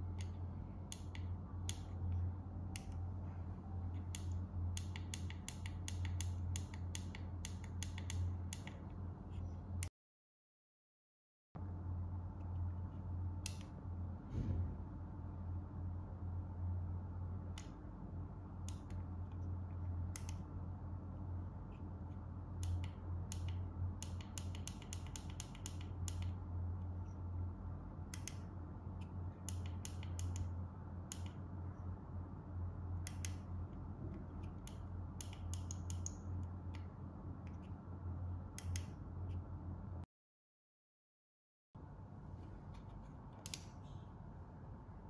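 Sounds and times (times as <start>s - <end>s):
steady low hum: 0.0s - 9.9s, 11.6s - 40.1s, 41.8s - 45.0s.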